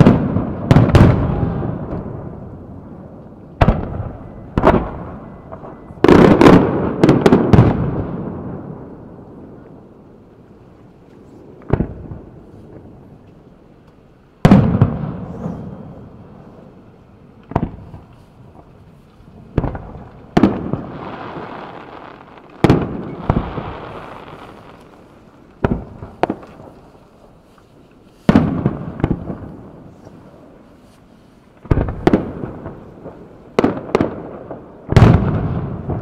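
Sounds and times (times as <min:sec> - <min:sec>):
firework shells booming: 0:00.0 - 0:02.7, 0:03.6 - 0:08.9, 0:14.4 - 0:16.3, 0:17.5 - 0:18.8, 0:19.4 - 0:27.0, 0:28.3 - 0:30.2, 0:31.6 - 0:36.0.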